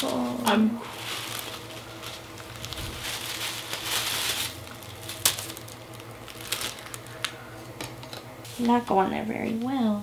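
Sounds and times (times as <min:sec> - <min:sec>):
wig hair rustling: 0:00.0 - 0:07.4.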